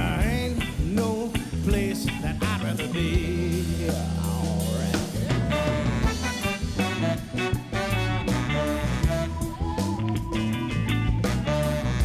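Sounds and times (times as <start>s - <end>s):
person singing sliding vocal line: 0.0s - 6.0s
bass guitar: 0.0s - 12.0s
drum kit: 0.0s - 12.0s
funk band playing live: 0.0s - 12.0s.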